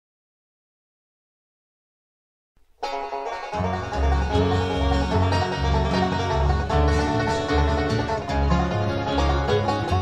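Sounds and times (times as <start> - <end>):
banjo rolls: 2.8 - 10.0
strummed acoustic guitar: 2.8 - 10.0
upright bass plucking: 2.8 - 10.0.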